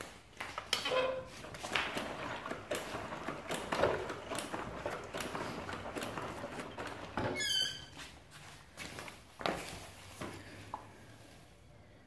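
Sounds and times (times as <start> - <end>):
short squeak: 7.4 - 8.0.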